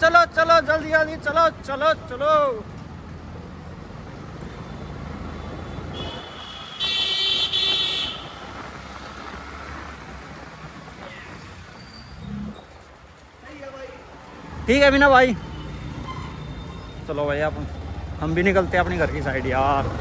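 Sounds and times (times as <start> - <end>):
road and engine noise: 0.0 - 20.0
vehicle horn honking: 5.9 - 8.4.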